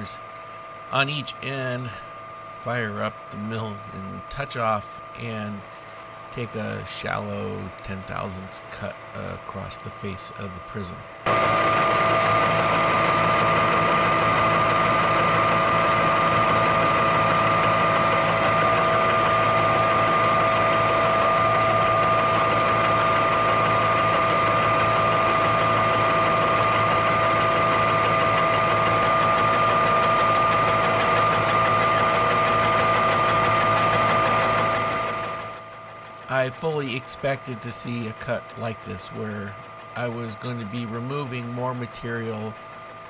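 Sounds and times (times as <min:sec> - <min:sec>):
milling machine whine: 0:00.0 - 0:43.0
fast even ticking: 0:11.3 - 0:43.0.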